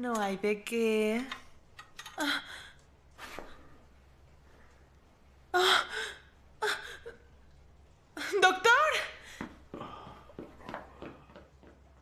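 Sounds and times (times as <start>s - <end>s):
woman gasping: 5.5s - 7.2s.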